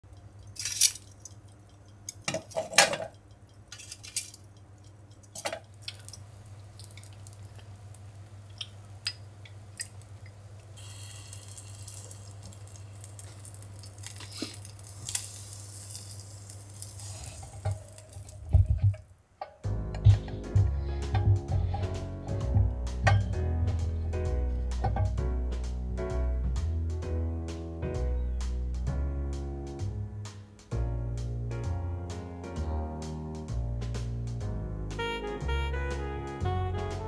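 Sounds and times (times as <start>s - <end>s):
metal tongs clinking on charcoal: 0.1s - 6.2s, 10.8s - 18.4s, 23.1s - 23.4s
low steady hum: 0.1s - 26.0s
fish sizzling on grill: 2.6s - 18.8s.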